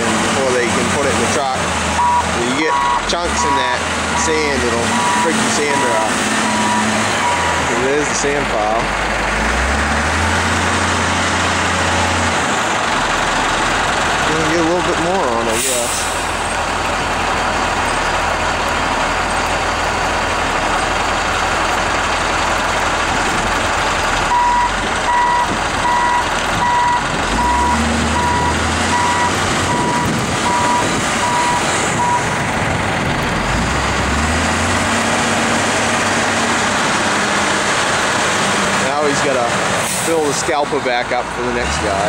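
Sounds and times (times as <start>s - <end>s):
diesel engine running under load: 0.0s - 42.0s
reversing alarm beeping: 2.0s - 7.6s, 24.3s - 32.2s.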